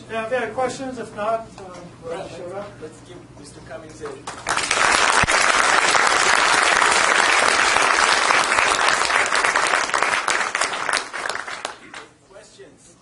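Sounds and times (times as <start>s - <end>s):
audience applauding: 4.2s - 12.1s.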